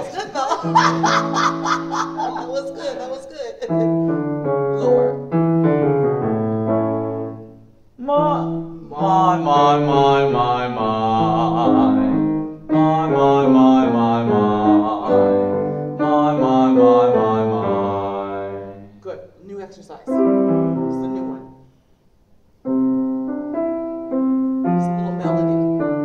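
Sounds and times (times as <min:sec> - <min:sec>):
piano chords: 0:00.0 - 0:21.8, 0:22.6 - 0:26.0
person singing vocal warm-up with vibrato: 0:08.0 - 0:18.8.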